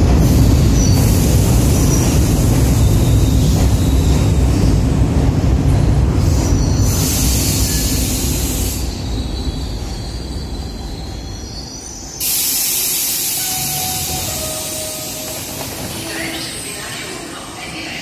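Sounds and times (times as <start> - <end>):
train rumble: 0.0 - 18.0
air hissing: 6.2 - 9.3, 12.1 - 16.5
wheels and brakes squealing: 6.3 - 16.8.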